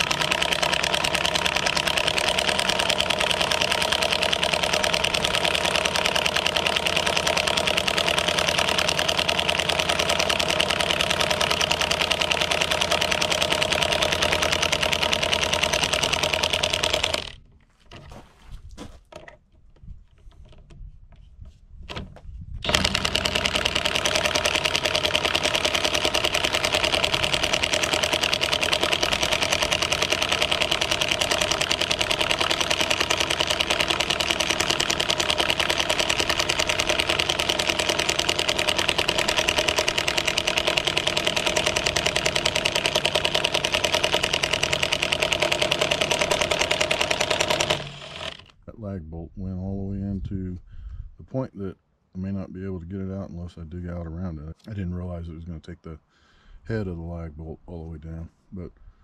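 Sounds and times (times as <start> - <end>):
impact wrench hammering: 0.0 - 17.4, 22.6 - 48.5.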